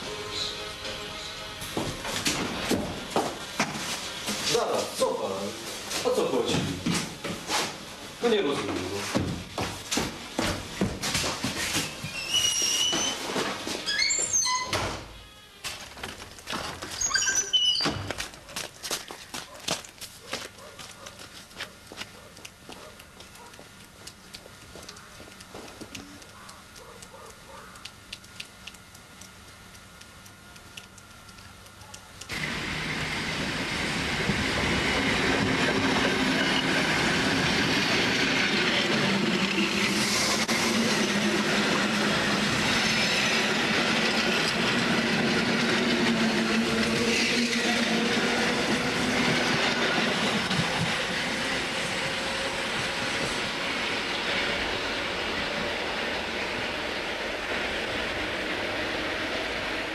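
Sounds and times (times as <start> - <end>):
electric train running: 0.0 - 3.6, 32.3 - 59.9
faint clicks: 22.3 - 32.3.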